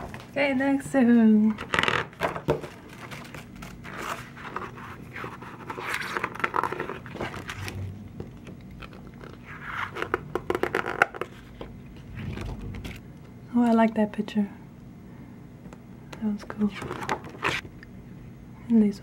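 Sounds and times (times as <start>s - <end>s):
glossy pages rustling: 1.6s - 13.0s, 16.6s - 17.6s.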